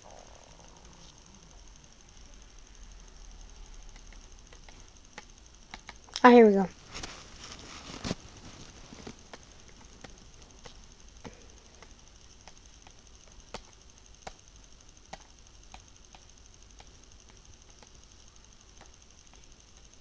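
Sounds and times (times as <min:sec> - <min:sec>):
computer keys clicking: 0:00.6 - 0:06.7, 0:09.0 - 0:20.0.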